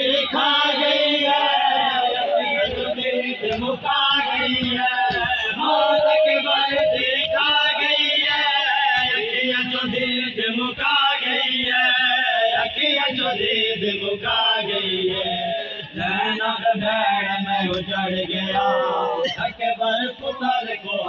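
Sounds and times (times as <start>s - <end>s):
men chanting a mourning lament: 0.0s - 21.0s.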